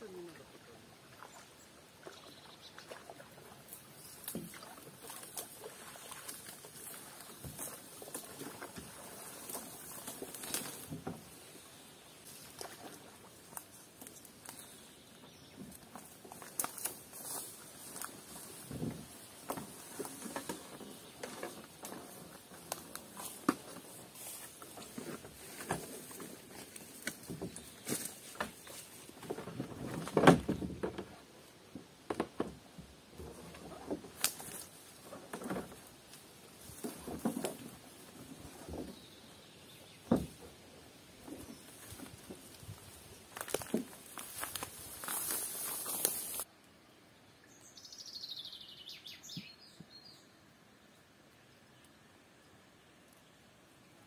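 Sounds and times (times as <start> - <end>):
paddle splashing in water: 1.0 - 11.4
footsteps through tall grass: 4.6 - 11.0, 15.9 - 29.2, 41.4 - 46.5.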